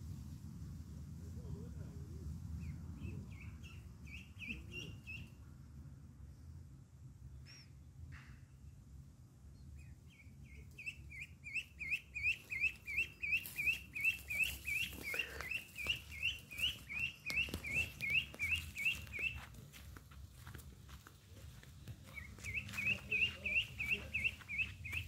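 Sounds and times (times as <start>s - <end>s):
duckling peeping: 2.6s - 5.4s, 9.8s - 19.5s, 22.1s - 25.0s.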